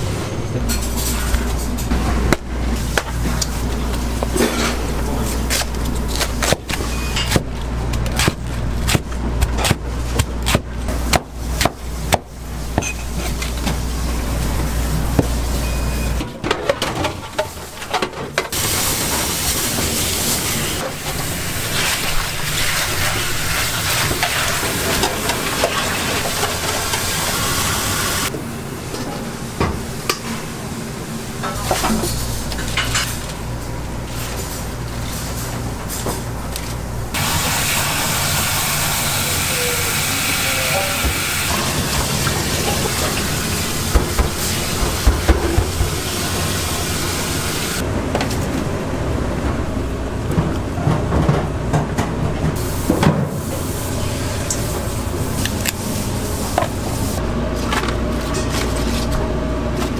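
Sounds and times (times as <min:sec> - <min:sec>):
cleaver chopping cabbage: 0:05.4 - 0:12.9, 0:43.9 - 0:46.1.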